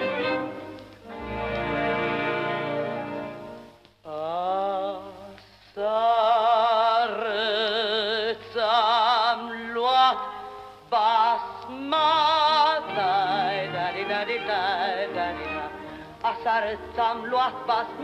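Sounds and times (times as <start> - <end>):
woman singing folk song: 4.0 - 18.0.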